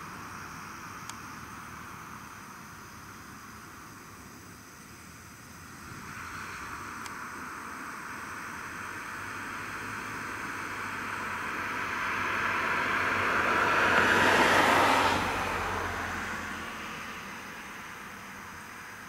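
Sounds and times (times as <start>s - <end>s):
car passing by: 8.0s - 19.0s.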